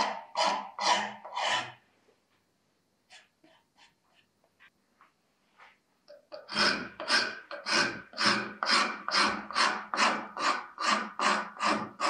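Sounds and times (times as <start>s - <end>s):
wood rasp scraping wood: 0.0s - 1.8s, 6.3s - 12.0s.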